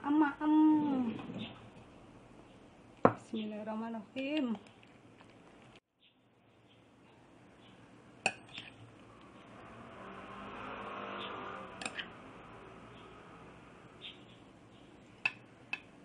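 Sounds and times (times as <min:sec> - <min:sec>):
motor vehicle passing: 0:08.8 - 0:15.1.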